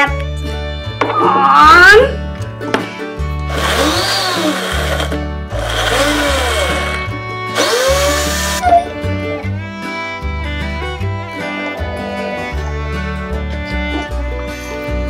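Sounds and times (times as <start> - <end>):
blender chopping fruit: 3.5 - 8.6.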